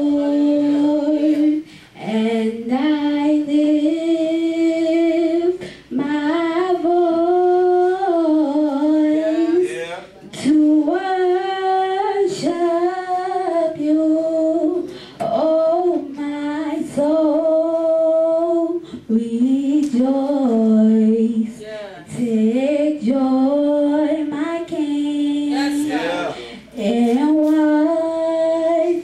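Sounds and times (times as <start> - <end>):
girl singing: 0.0 - 29.0.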